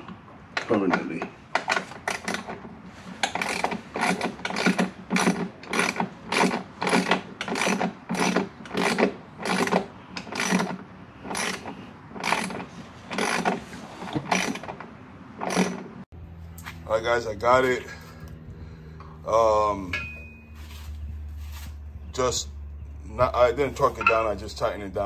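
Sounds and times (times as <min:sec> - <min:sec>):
hand ratchet clicking: 0:03.2 - 0:14.8.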